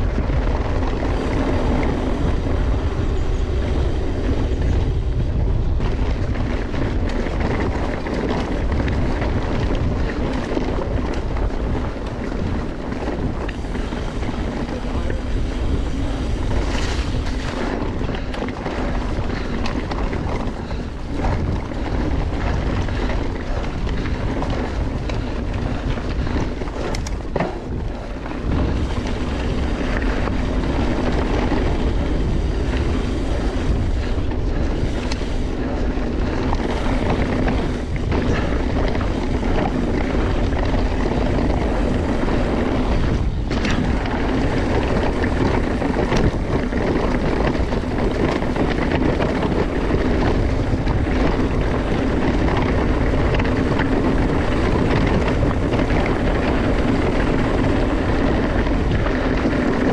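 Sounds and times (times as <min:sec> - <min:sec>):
bike knocking and rattling: 0:00.0 - 0:59.9
tyres rumbling on trail: 0:00.0 - 0:59.9
wind rushing over microphone: 0:00.0 - 0:59.9.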